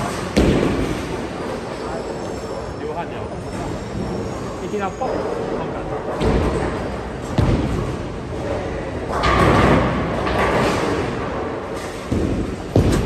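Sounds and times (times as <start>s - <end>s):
bowling balls thudding and rolling: 0.0s - 1.6s, 5.9s - 13.0s.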